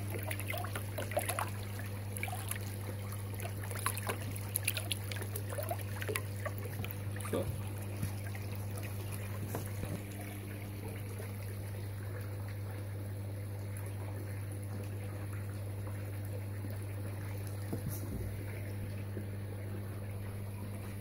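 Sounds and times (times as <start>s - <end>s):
water trickling: 0.0s - 21.0s
faint knocks or splashes: 3.3s - 11.3s, 17.4s - 19.3s.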